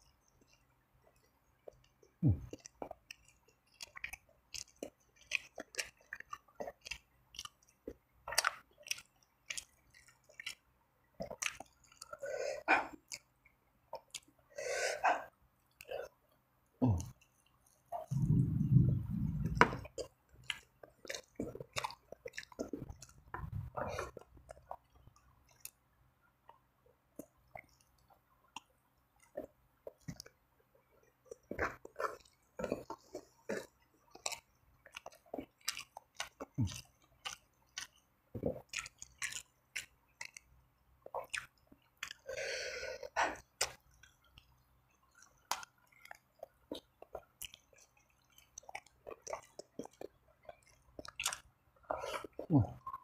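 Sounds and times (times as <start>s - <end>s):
wet chewing: 0.1s - 14.4s, 16.8s - 25.8s, 26.4s - 53.0s
lip smacks: 18.0s - 24.9s, 43.0s - 44.2s.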